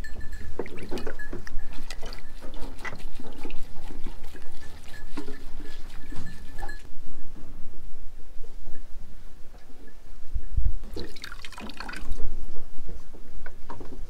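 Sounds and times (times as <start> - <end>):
wet cloth sloshing in bowl of water: 0.6 - 6.8.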